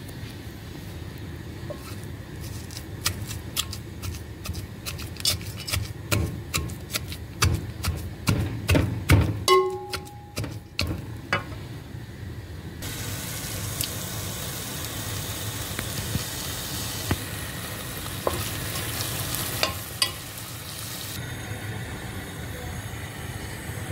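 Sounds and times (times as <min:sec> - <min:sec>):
food sizzling in a pot: 0:01.6 - 0:06.6, 0:12.8 - 0:23.9
spoon scraping: 0:01.7 - 0:08.1, 0:09.5 - 0:10.8
spoon knocking against pot: 0:08.7 - 0:11.5.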